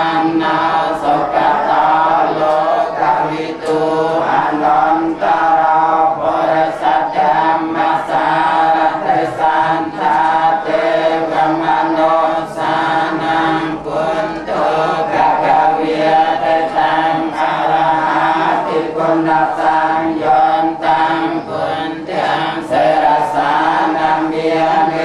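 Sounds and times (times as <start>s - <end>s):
monks chanting: 0.0s - 25.0s.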